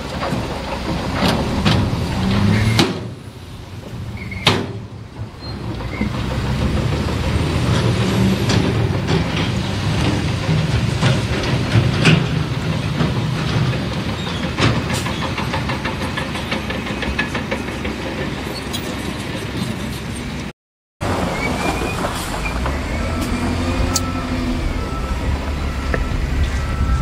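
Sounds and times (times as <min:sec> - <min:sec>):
diesel engine under load: 0:00.0 - 0:27.0
backup alarm beeps: 0:23.0 - 0:27.0.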